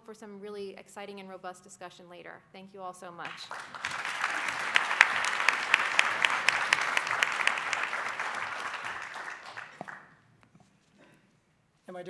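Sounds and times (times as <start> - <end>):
audience applauding: 3.3 - 10.1.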